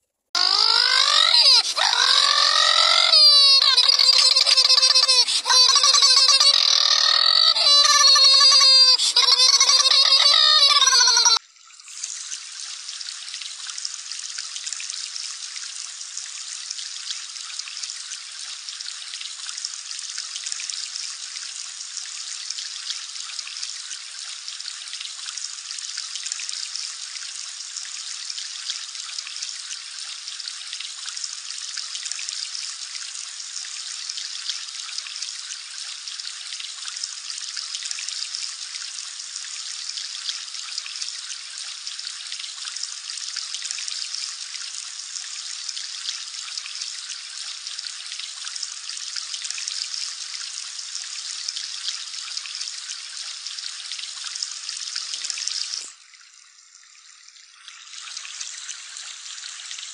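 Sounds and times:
water trickling and splashing: 11.4s - 59.9s.

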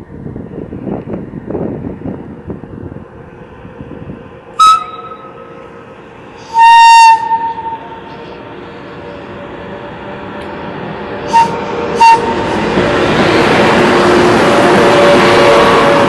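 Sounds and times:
freight train rumble: 0.0s - 16.0s
locomotive horn blasts: 4.6s - 5.4s, 6.4s - 8.0s, 11.3s - 12.5s, 14.6s - 16.0s.

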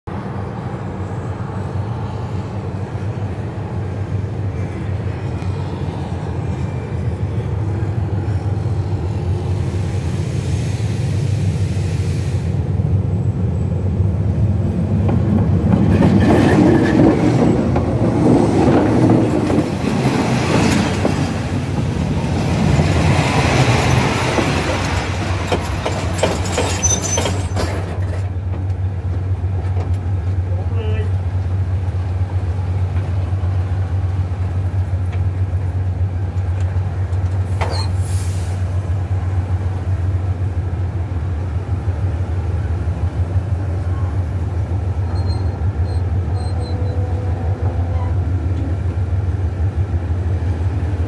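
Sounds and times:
train wheels rolling on rail: 1.2s - 51.0s.

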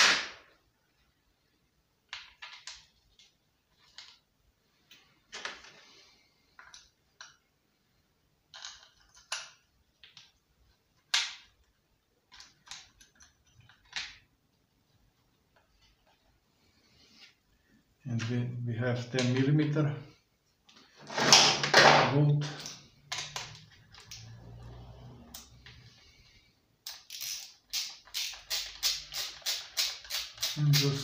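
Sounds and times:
plastic parts clicking and knocking: 2.0s - 4.3s, 6.5s - 7.5s, 8.5s - 14.3s, 20.7s - 24.2s.

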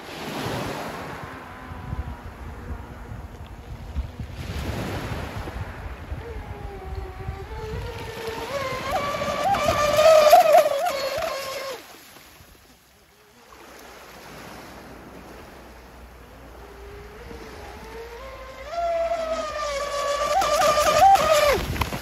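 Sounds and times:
electric motor whining: 6.0s - 11.8s, 16.1s - 22.0s.

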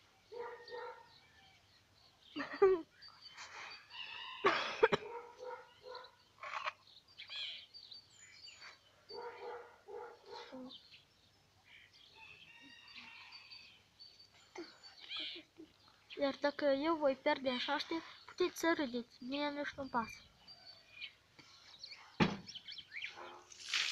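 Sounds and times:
birds calling: 0.0s - 23.9s
dog barking: 0.3s - 1.2s, 4.9s - 6.2s, 9.1s - 10.7s, 23.1s - 23.5s.

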